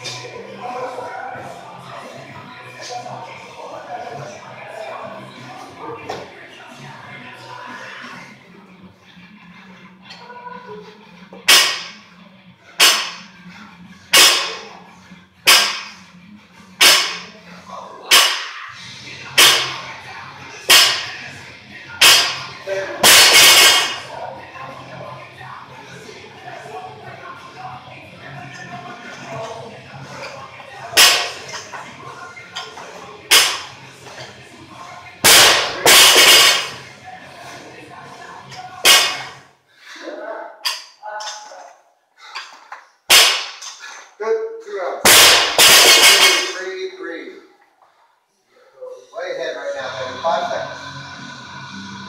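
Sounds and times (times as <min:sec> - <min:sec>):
barbell crashing on floor: 0:11.5 - 0:12.0, 0:12.8 - 0:13.2, 0:14.2 - 0:14.6, 0:15.5 - 0:16.0, 0:16.8 - 0:17.3, 0:18.1 - 0:18.5, 0:20.7 - 0:21.1, 0:22.0 - 0:22.4, 0:23.0 - 0:24.0, 0:31.0 - 0:31.4, 0:33.3 - 0:33.7, 0:35.3 - 0:36.8, 0:38.9 - 0:39.4, 0:43.1 - 0:43.6, 0:45.1 - 0:46.6.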